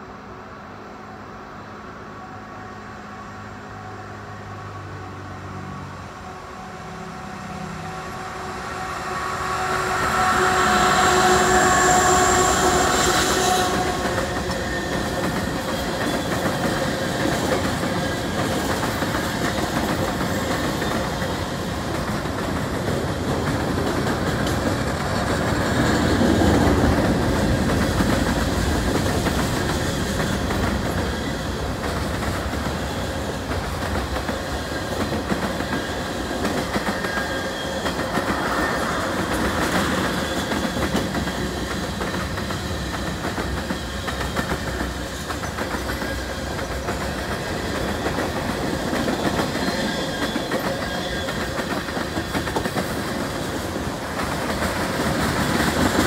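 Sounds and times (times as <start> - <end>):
diesel locomotive engines: 0.0 - 56.0
steady horn tones: 6.2 - 15.0
freight cars clattering on rails: 12.4 - 56.0.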